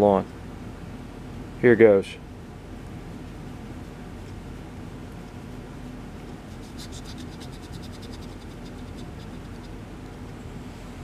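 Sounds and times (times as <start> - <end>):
needle scratchy ticks in wood: 6.2 - 10.4.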